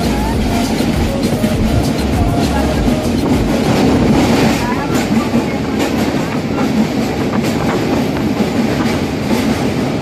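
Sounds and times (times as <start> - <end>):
train wheels rumbling on rails: 0.0 - 10.0.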